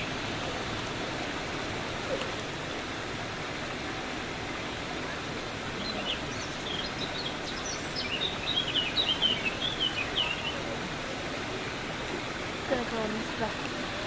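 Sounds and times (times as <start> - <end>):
steady rushing background noise: 0.0 - 14.0.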